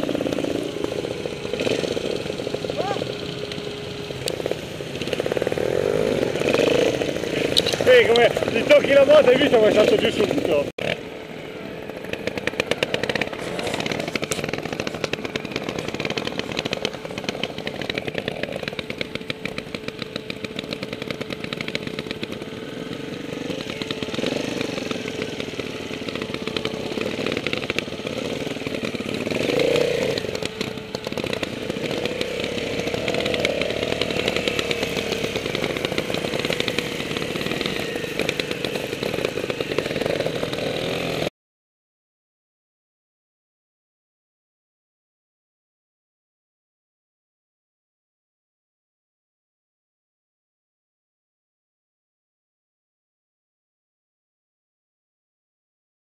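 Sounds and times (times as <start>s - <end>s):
motorcycle engines at low revs: 0.0s - 41.3s.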